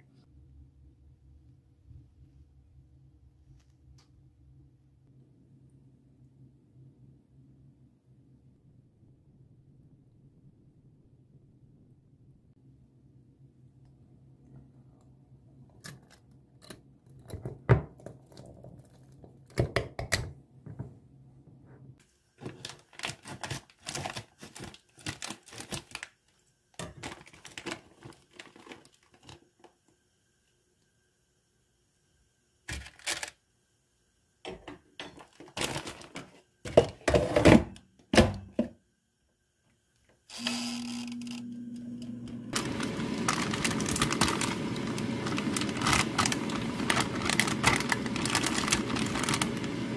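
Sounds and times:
plastic bag crinkling: 0:22.4 - 0:29.5, 0:32.7 - 0:33.3, 0:35.4 - 0:36.4, 0:42.5 - 0:49.9
air fryer whirring: 0:40.3 - 0:49.9.

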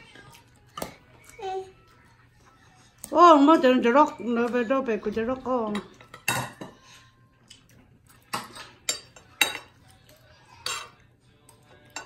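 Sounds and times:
cutlery clinking on ceramic plate: 0:05.7 - 0:06.9, 0:08.1 - 0:11.1, 0:11.8 - 0:12.0.

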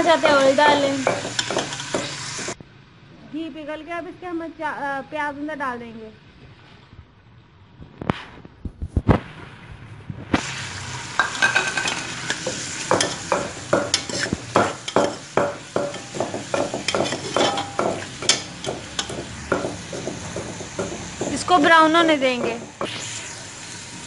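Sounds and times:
onions sizzling in a pot: 0:00.0 - 0:02.6, 0:10.3 - 0:24.0
metal ladle scraping a pot: 0:01.1 - 0:02.6, 0:11.2 - 0:21.2.

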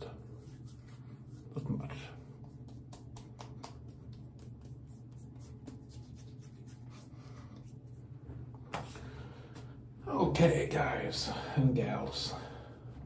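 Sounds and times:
steady low hum: 0:00.0 - 0:13.0
hands patting skin: 0:00.1 - 0:08.0, 0:08.6 - 0:09.7.

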